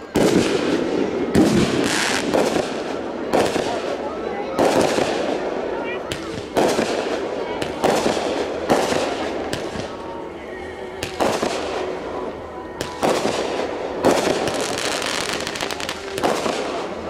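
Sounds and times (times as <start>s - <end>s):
fireworks booms and pops: 0.1s - 4.0s, 4.6s - 5.4s, 6.1s - 9.9s, 12.8s - 17.0s.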